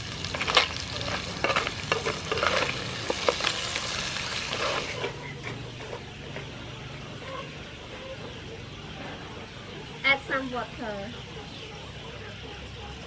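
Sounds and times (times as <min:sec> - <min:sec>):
frying sizzle: 0:00.0 - 0:06.4
crab shells clattering in wok: 0:00.2 - 0:05.0.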